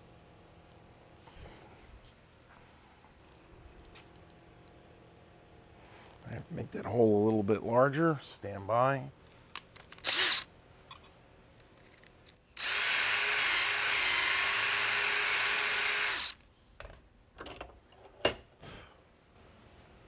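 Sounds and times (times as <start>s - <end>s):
power drill drilling wood: 10.0s - 10.5s, 12.6s - 16.4s.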